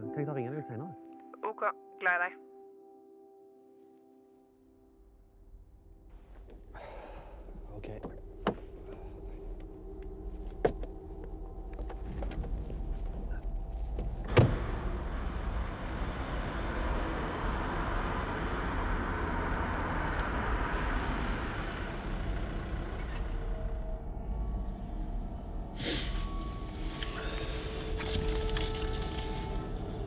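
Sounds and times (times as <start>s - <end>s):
car door slamming: 14.2s - 14.8s
car driving by: 14.2s - 30.0s.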